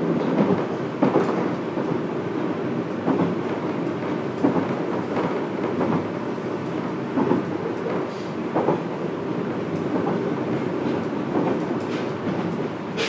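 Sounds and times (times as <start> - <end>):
clacks over rail joints: 0.2 - 2.0, 3.0 - 6.1, 7.1 - 9.0, 9.7 - 13.0.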